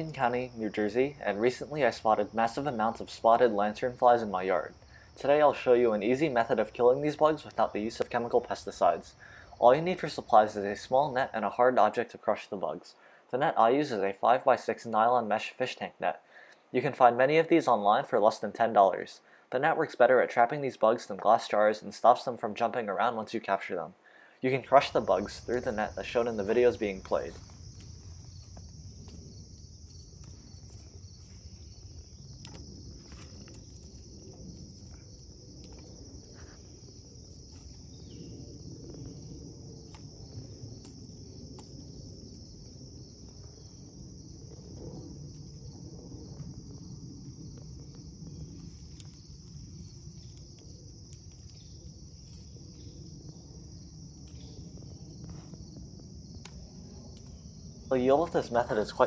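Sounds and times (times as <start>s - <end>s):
high-pitched insect chorus: 0.0s - 59.0s
low background rumble: 24.6s - 59.0s.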